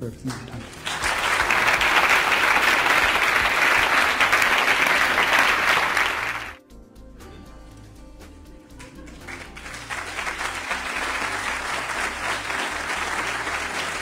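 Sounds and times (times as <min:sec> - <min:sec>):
audience applauding: 0:00.2 - 0:06.6, 0:08.8 - 0:14.0
soft background music: 0:06.6 - 0:14.0.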